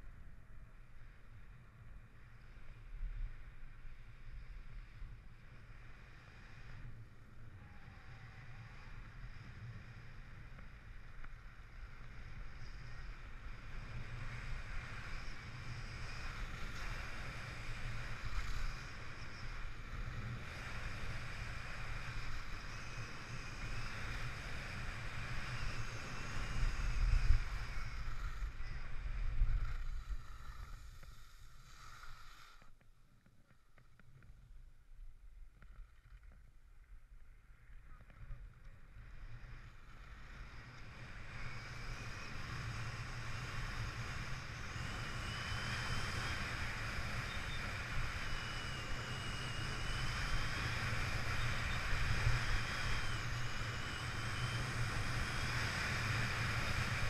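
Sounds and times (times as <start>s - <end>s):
skis hissing over snow: 29.9s - 32.7s.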